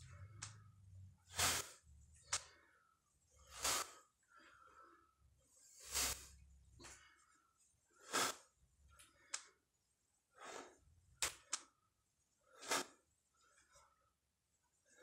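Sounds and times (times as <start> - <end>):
man breathing hard: 2.4 - 9.6.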